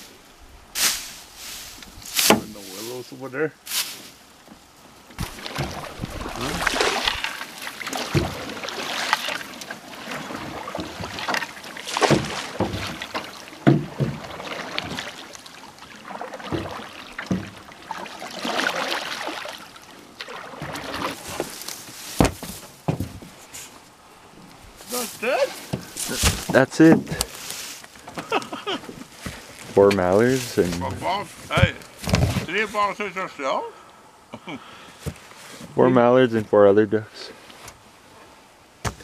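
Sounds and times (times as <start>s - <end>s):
reeds brushing hull: 0.8s - 4.3s, 5.2s - 23.9s, 24.6s - 33.1s
paddle strokes swishing: 5.2s - 23.8s
sharp knocks: 22.2s - 23.3s.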